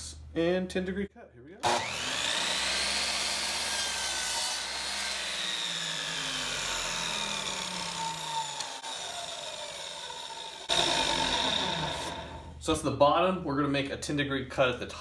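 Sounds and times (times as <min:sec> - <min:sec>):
saw blade rasping through wood: 0:01.6 - 0:12.4
miter saw motor whine: 0:01.6 - 0:12.5.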